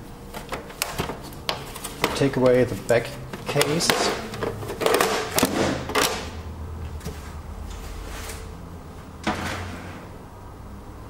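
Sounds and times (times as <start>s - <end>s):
plastic case knocking and clattering: 3.3s - 6.2s.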